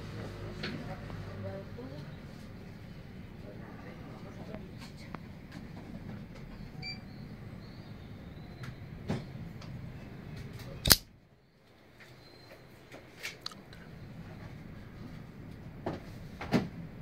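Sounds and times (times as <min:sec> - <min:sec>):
knife blade snapping open: 0:10.8 - 0:11.0.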